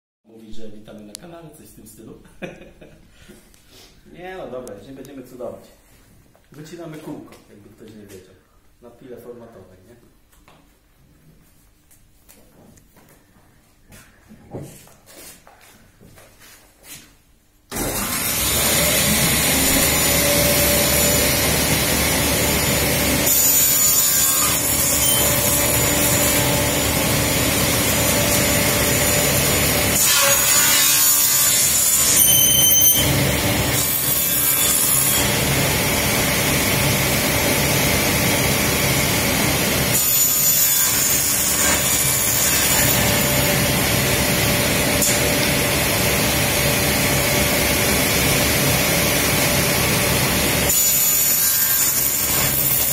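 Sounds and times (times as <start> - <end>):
panel saw cutting plywood: 17.7 - 52.9.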